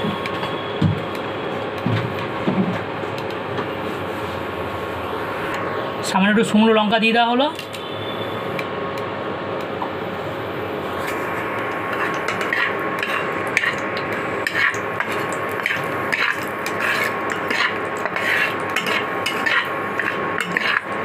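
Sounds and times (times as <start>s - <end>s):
induction cooktop hum and whine: 0.0s - 21.0s
chillies sizzling in hot oil: 10.8s - 21.0s.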